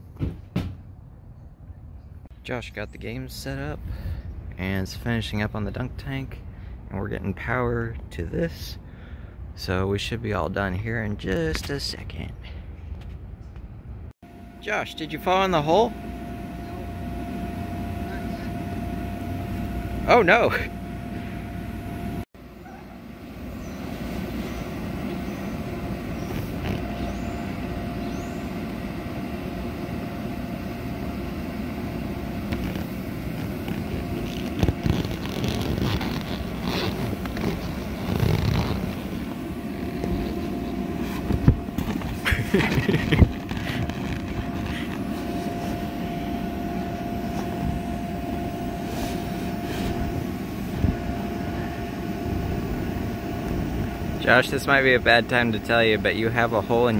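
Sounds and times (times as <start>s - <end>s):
motor running: 14.3s - 22.2s, 23.0s - 56.9s.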